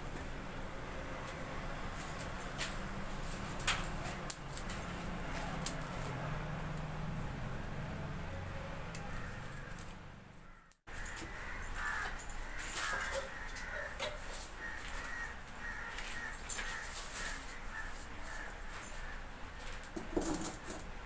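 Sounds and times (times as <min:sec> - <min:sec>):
twigs crackling in fire: 0:02.5 - 0:06.9
birds calling: 0:08.9 - 0:19.6.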